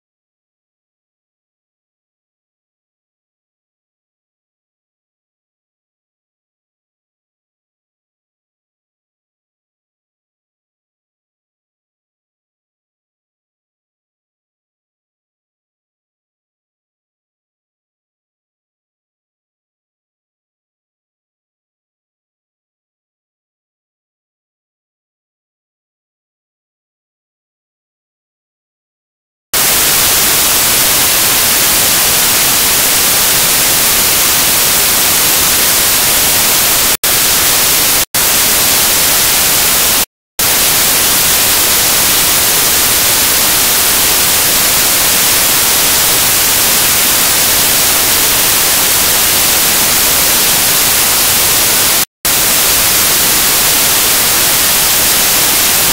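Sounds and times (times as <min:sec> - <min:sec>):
loud white noise static: 0:29.6 - 0:55.9.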